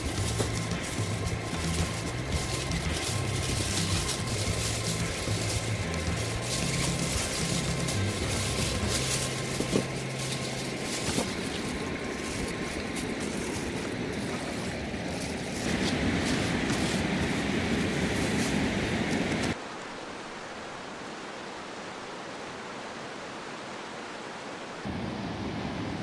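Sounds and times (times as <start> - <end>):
foil crinkling and rustling: 0.0 - 19.6
river rushing: 0.0 - 26.0.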